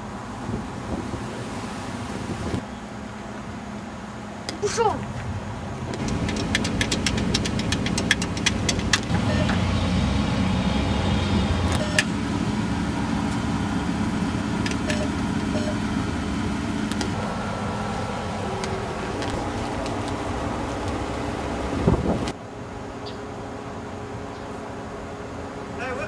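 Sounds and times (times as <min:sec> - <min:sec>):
low mechanical rumble: 0:00.0 - 0:26.0
keypad buttons clicking: 0:06.0 - 0:09.6.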